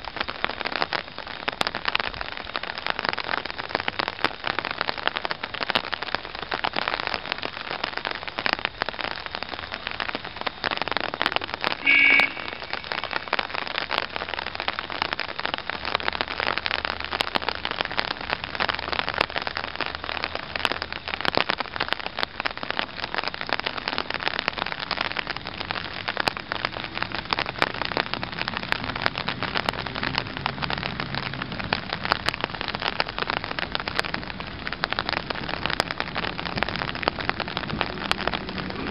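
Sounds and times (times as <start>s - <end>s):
rain patter: 0.0s - 38.9s
brief high tone: 11.8s - 13.5s.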